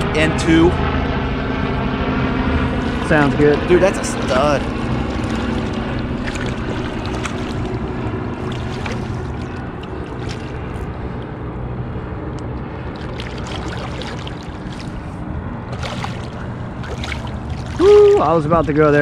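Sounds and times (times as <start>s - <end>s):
boat motor idling: 0.0s - 19.0s.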